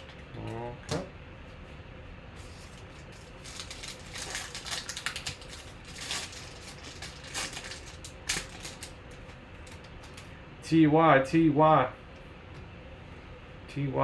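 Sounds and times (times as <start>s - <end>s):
foil wrapper crinkling and tearing: 2.5s - 10.3s.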